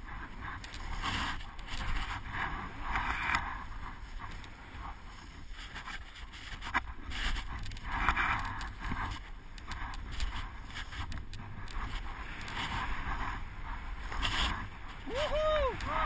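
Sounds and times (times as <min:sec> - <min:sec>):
skis carving through snow: 0:00.0 - 0:16.0
wind rumble on microphone: 0:00.0 - 0:16.0.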